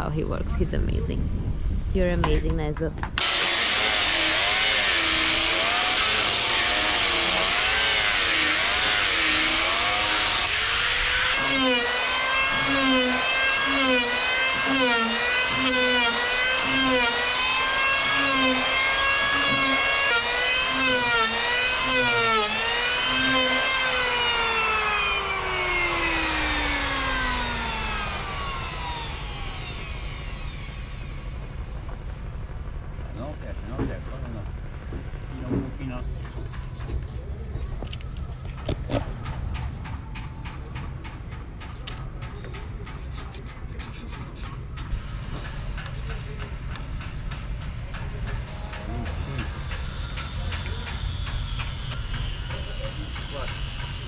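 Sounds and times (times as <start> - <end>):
angle grinder sanding wood: 3.2 - 31.9
electric planer cutting wood: 3.2 - 32.2, 42.6 - 54.0.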